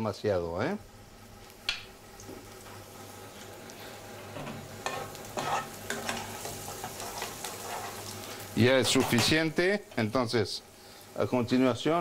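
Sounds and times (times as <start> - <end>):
shallots sizzling in oil: 0.0 - 12.0
metal spoon scraping a pan: 4.3 - 8.2, 8.8 - 9.4.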